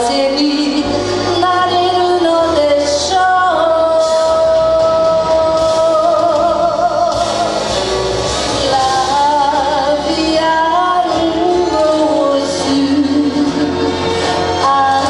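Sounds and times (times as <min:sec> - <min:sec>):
instrumental accompaniment: 0:00.0 - 0:15.0
woman singing a ballad: 0:00.0 - 0:15.0.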